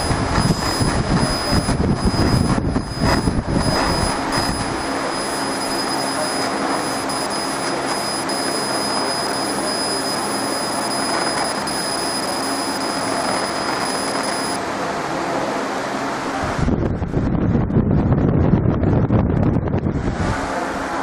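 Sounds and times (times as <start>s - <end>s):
laser machine rushing noise: 0.0s - 14.6s
thin high whine: 0.0s - 16.9s.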